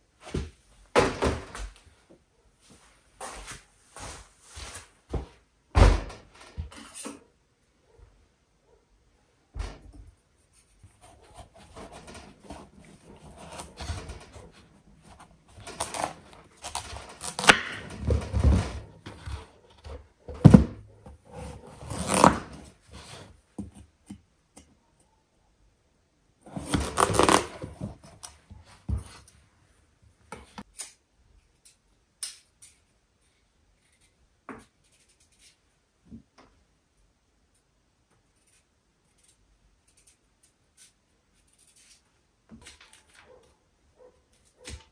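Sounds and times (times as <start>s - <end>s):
scraping or rustling: 10.4s - 23.4s, 26.5s - 29.4s.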